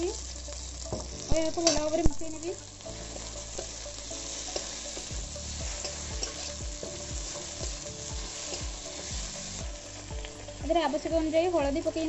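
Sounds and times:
vegetables sizzling in oil: 0:00.0 - 0:12.0
metal spatula scraping pan: 0:04.3 - 0:07.6.

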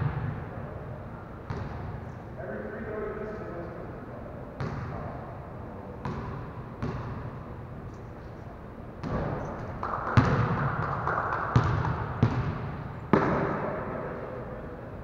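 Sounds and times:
basketballs bouncing in a gym: 0:00.0 - 0:00.7, 0:01.4 - 0:02.0, 0:04.6 - 0:05.1, 0:06.0 - 0:07.3, 0:09.0 - 0:14.0.

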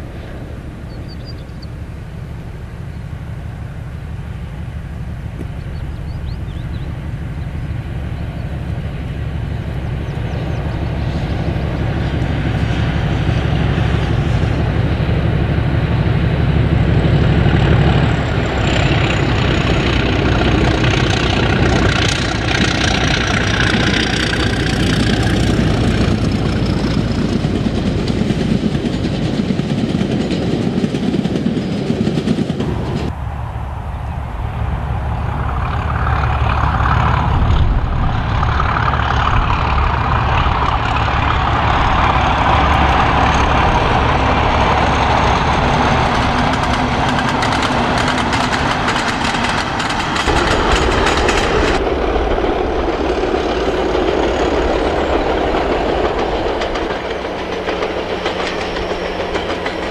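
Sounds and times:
diesel locomotive engine: 0:00.0 - 0:59.9
faint high falling whine: 0:32.7 - 0:36.0
wagons rolling: 0:38.6 - 0:52.1.

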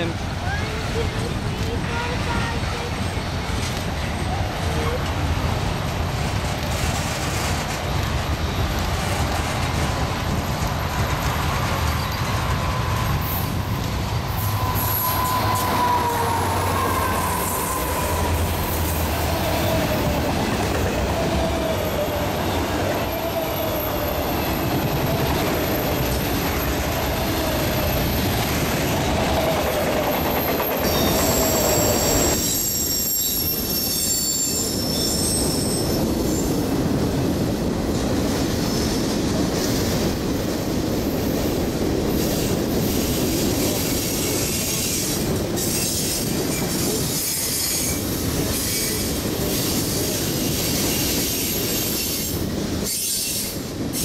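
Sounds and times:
train wheels rumbling on rail: 0:00.0 - 0:54.0
train wheel squeal: 0:06.7 - 0:36.7, 0:42.1 - 0:54.0.

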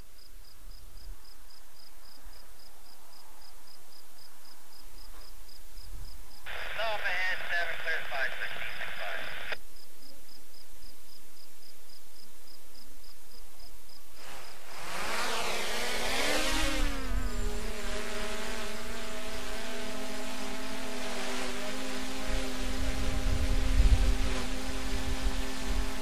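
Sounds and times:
vehicle passing by: 0:14.2 - 0:26.0.

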